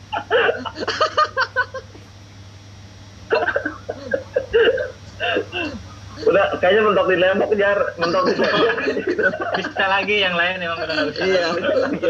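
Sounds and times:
men laughing over video call: 0.1 - 2.0, 8.0 - 10.1, 10.8 - 12.0.

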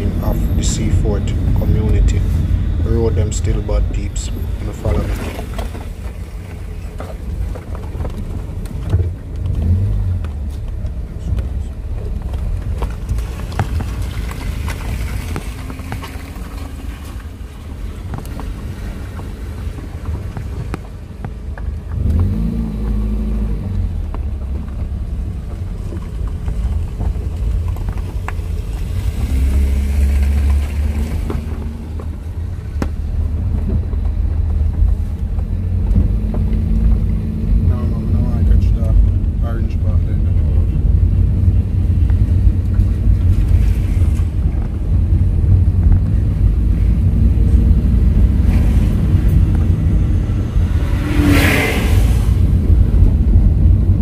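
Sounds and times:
car engine and tyre rumble: 0.0 - 54.0
knocks from rough road: 4.8 - 23.0, 23.8 - 37.7.

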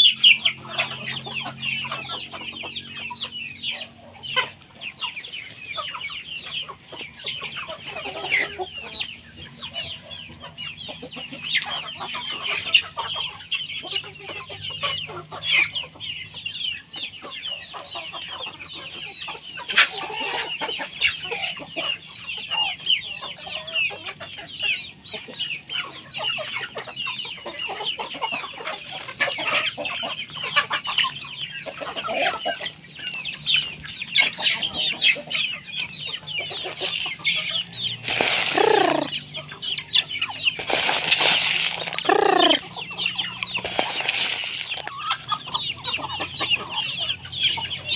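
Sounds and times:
chickens clucking and peeping: 0.0 - 47.9
chicken squawks falling in pitch: 38.3 - 39.1.

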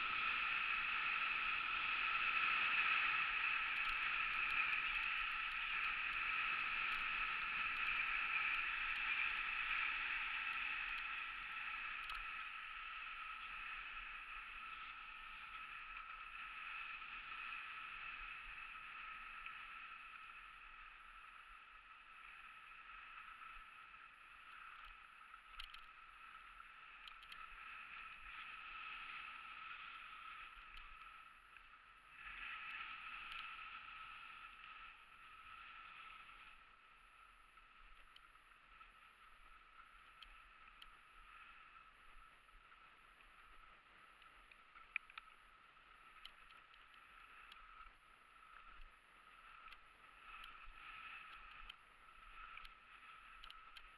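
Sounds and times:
skis sliding on snow: 0.0 - 53.9
faint click: 11.8 - 12.4, 22.8 - 34.0, 43.3 - 53.9.

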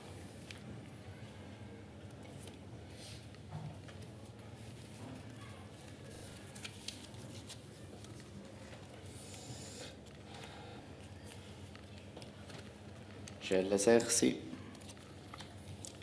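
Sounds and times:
low room hum: 0.0 - 16.0
playing cards clicking and rustling: 5.9 - 9.1.

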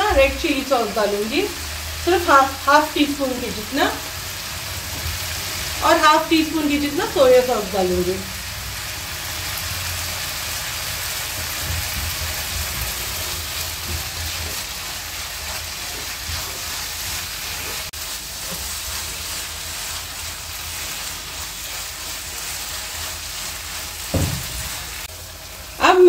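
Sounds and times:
vegetables sizzling in a frying pan: 0.0 - 26.0
spatula stirring: 11.4 - 25.1.

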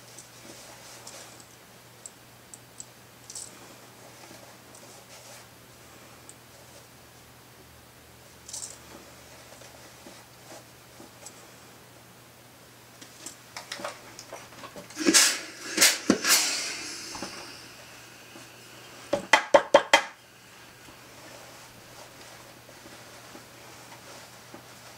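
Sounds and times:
fabric rustling: 20.5 - 24.9.

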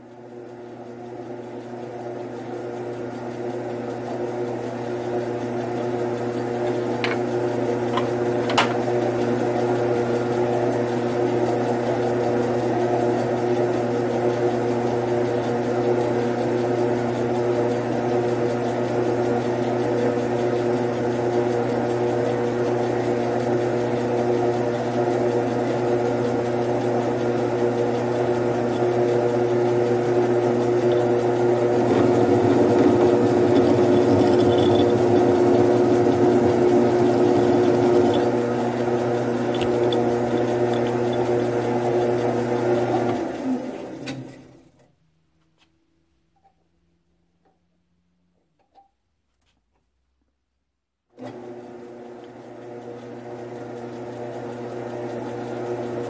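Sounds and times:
metal lathe motor hum: 0.0 - 44.5, 51.2 - 56.0
lathe control clicks: 31.9 - 43.2.

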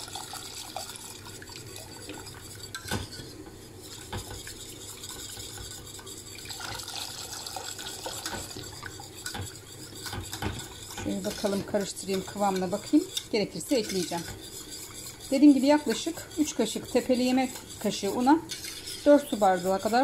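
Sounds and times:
milk pouring: 0.0 - 2.4, 6.4 - 8.9
whisk clinking against pot: 0.0 - 20.0
whisk stirring in metal pot: 0.0 - 20.0.

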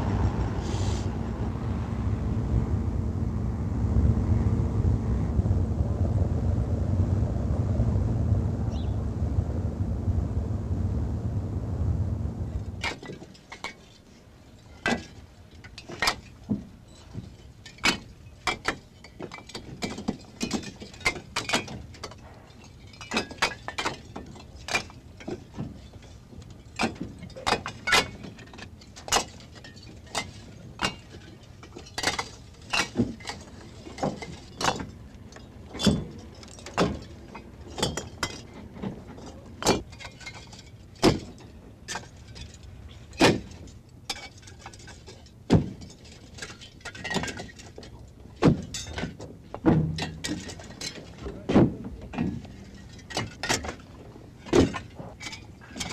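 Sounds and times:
low rumble: 0.0 - 13.1.

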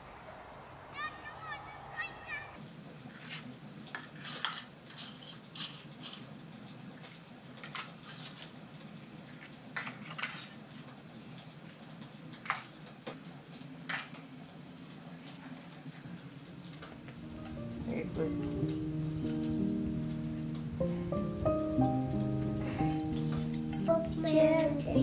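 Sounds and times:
low steady hum: 16.6 - 25.0.

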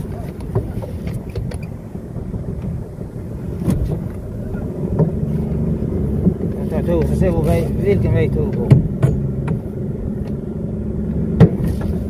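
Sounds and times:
boat motor running: 0.0 - 12.0
water noise: 0.0 - 12.0
wind: 0.0 - 12.0
sharp knocks: 8.5 - 9.6, 11.4 - 12.0.

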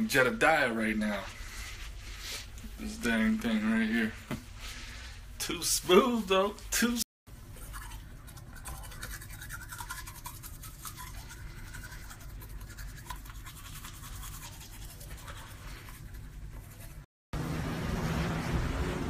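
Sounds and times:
toothbrush scrubbing teeth: 7.4 - 17.1.

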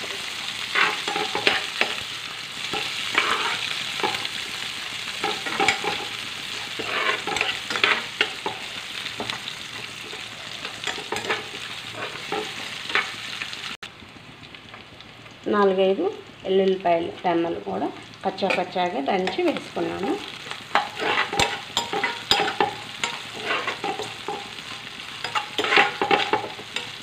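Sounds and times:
onions sizzling in hot oil: 0.0 - 27.0
spatula stirring and scraping: 0.2 - 4.4, 5.1 - 13.2, 20.5 - 27.0.

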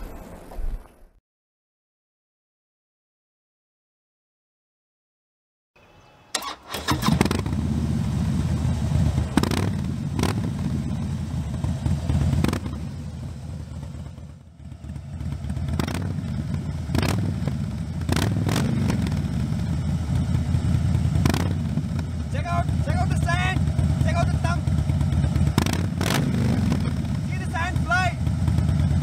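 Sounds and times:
motorcycle engine starting and running: 6.3 - 29.0.

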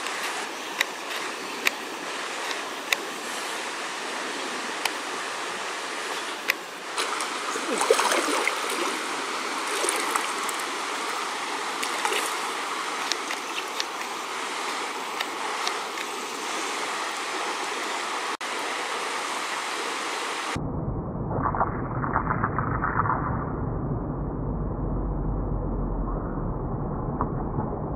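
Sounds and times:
stream rushing over rocks: 0.0 - 20.6.

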